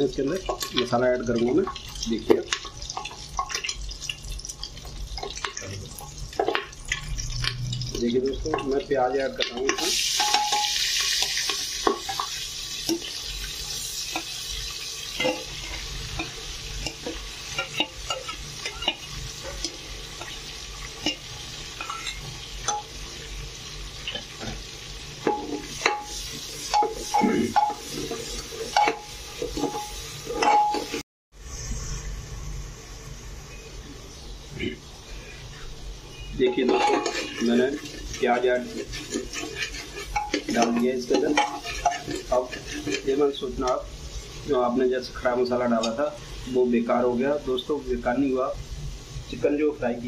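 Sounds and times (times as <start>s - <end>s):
onion sizzling in hot oil: 0.0s - 50.0s
steel ladle scraping a pot: 25.3s - 31.0s, 36.1s - 43.4s.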